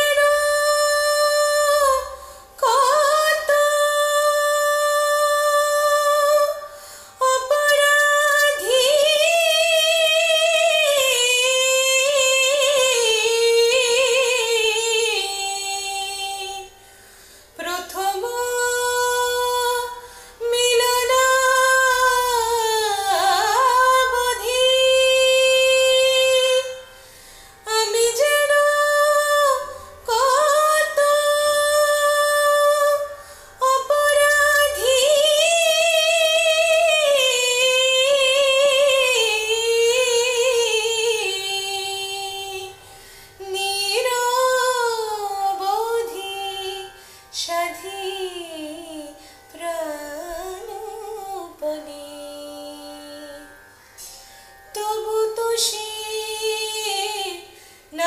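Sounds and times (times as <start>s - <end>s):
singer breathing: 2.2s - 2.6s, 6.7s - 7.2s, 16.7s - 17.6s, 20.0s - 20.4s, 26.9s - 27.7s, 33.2s - 33.6s, 42.8s - 43.4s, 47.0s - 47.3s, 53.8s - 54.7s, 57.5s - 57.9s.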